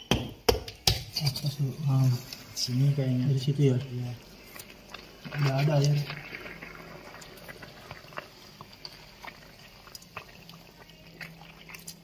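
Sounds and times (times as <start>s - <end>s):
hand scraping wet soil: 5.3s - 7.8s.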